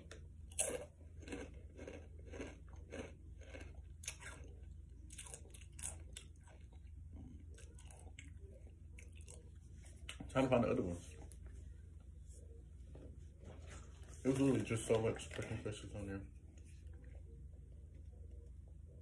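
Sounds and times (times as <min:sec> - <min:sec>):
person chewing crunchy chips: 0:00.0 - 0:10.3.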